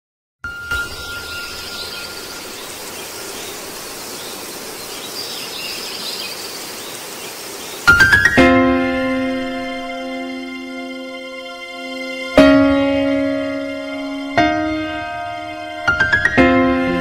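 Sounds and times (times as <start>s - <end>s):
faint high chirping: 0.4s - 8.3s
even hiss: 0.7s - 10.7s
background music: 7.9s - 17.0s.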